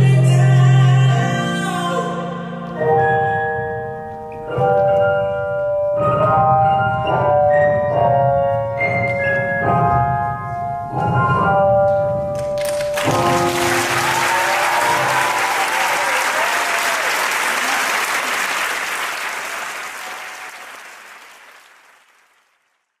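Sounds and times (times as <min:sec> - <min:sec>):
music: 0:00.0 - 0:16.4
audience applauding: 0:12.4 - 0:23.0.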